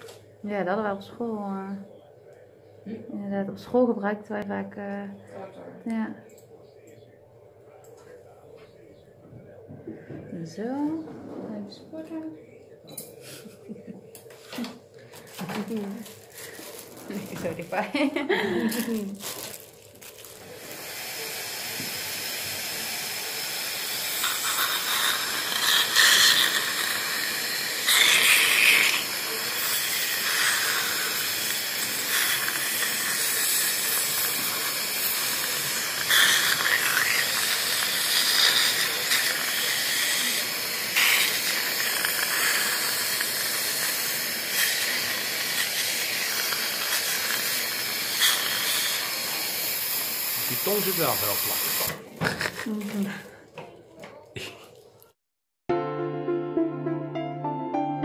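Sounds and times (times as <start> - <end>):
dental suction hissing: 20.6 - 52.6.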